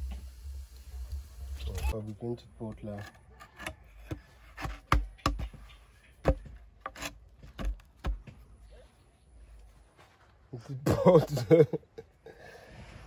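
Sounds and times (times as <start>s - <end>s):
wood rubbing: 2.6s - 8.4s.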